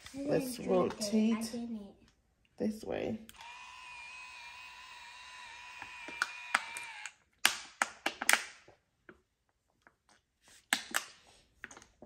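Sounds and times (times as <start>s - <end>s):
curling iron motor whining: 3.3s - 7.1s.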